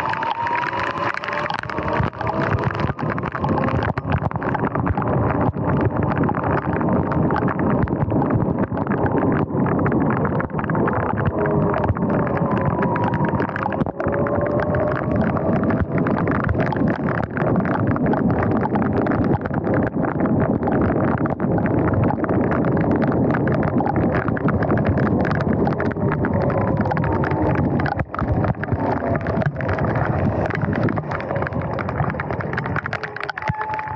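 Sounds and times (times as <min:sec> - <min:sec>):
heavy rain on camera: 0:00.0 - 0:33.9
wind rushing over microphone: 0:00.0 - 0:33.9.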